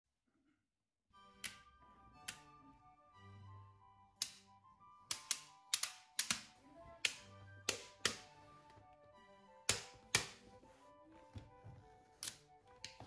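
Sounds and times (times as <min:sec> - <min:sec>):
soft background music: 0:00.4 - 0:13.0
magnetic balls snapping together: 0:04.2 - 0:08.4, 0:09.7 - 0:10.5, 0:12.2 - 0:13.0.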